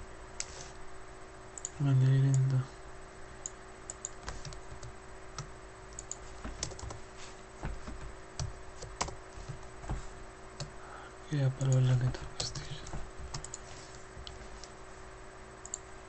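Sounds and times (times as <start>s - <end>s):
faint steady hum: 0.0s - 16.0s
computer keyboard keystrokes: 3.9s - 7.0s, 7.8s - 9.6s, 11.6s - 13.6s.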